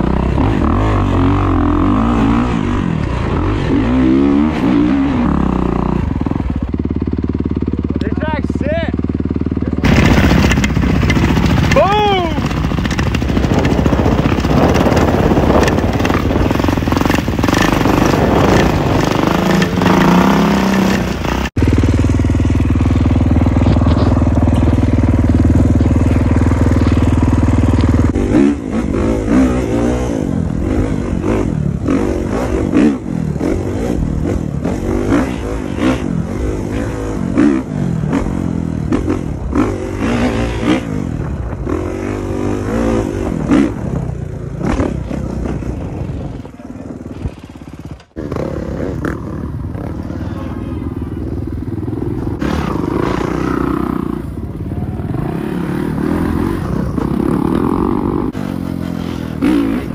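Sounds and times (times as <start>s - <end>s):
dirt bike engine revving: 0.0s - 59.9s
wind rushing: 12.2s - 20.8s.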